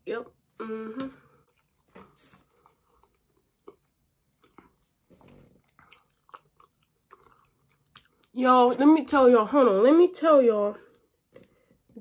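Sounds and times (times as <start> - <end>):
soft chewing mouth clicks: 1.4 - 4.9, 5.6 - 8.4.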